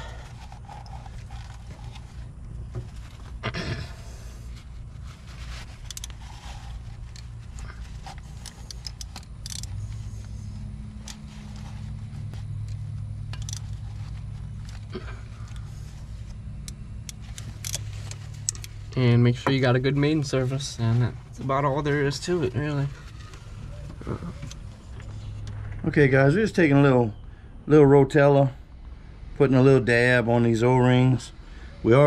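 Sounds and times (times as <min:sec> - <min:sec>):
low engine-like drone: 0:00.0 - 0:32.0
faint scraping and clicks: 0:04.2 - 0:19.0.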